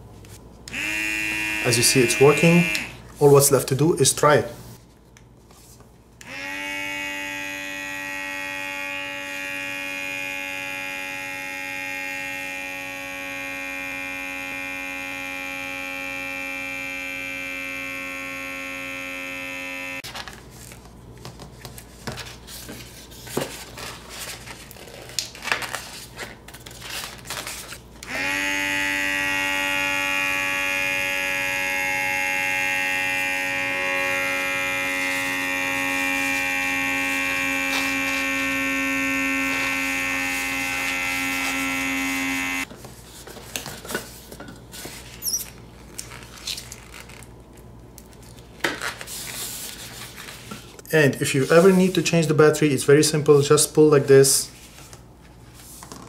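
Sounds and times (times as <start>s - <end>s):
mini air pump buzzing: 0.7s - 3.2s, 6.2s - 20.1s, 28.0s - 42.7s.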